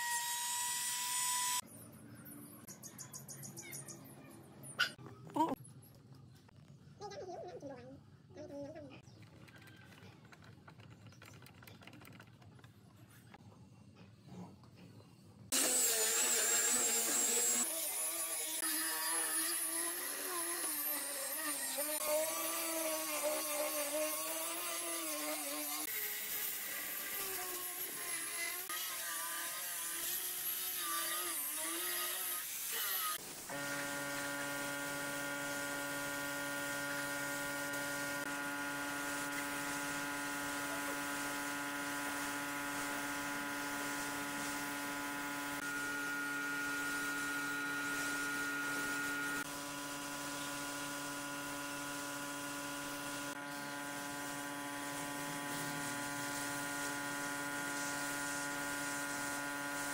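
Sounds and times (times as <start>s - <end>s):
angle grinder sanding wood: 15.5s - 59.9s.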